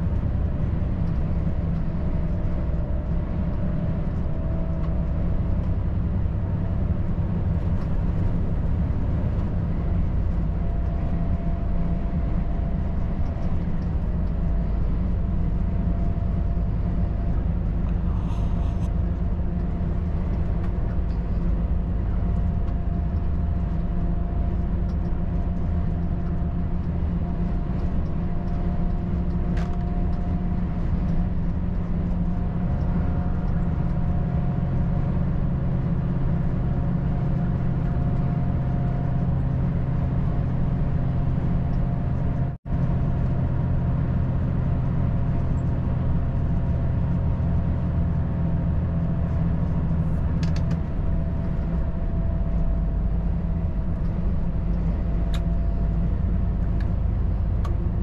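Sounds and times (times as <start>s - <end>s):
road and tyre noise: 0.0s - 58.0s
truck diesel engine drone: 0.0s - 58.0s.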